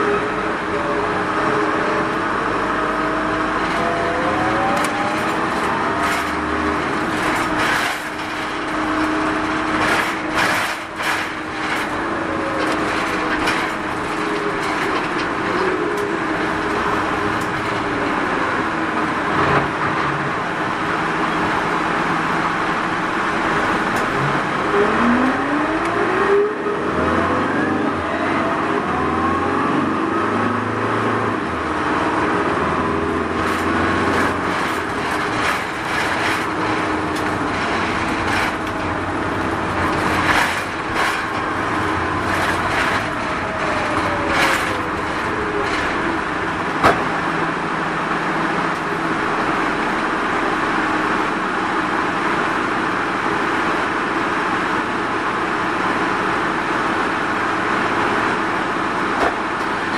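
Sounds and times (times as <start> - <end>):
bus engine whine: 0.0 - 59.9
bus rattles and knocks: 0.0 - 59.9.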